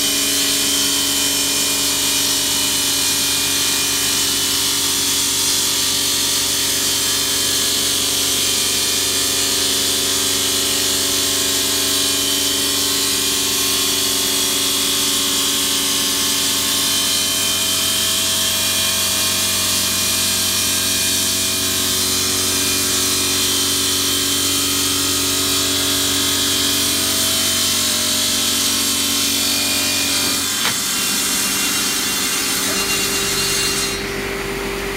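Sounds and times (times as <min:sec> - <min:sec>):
saw blade cutting stone: 0:00.0 - 0:34.5
saw motor hum: 0:16.5 - 0:34.9.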